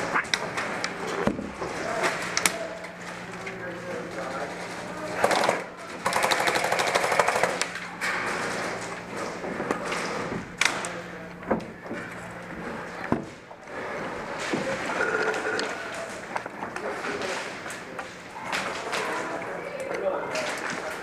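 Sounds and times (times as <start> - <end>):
airsoft gun full-auto burst: 5.2 - 7.6.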